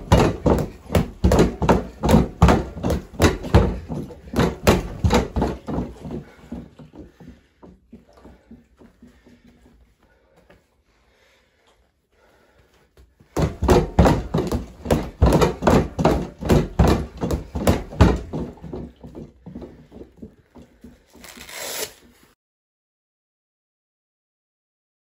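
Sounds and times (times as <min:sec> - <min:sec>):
punches thudding on punching bag: 0:00.0 - 0:06.2, 0:13.4 - 0:18.9.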